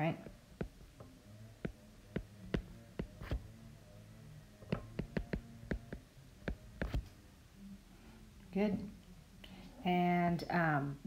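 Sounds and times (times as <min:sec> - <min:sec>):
faint low hum: 0:00.0 - 0:11.0
stylus tapping on glass screen: 0:01.6 - 0:03.4, 0:04.7 - 0:07.0.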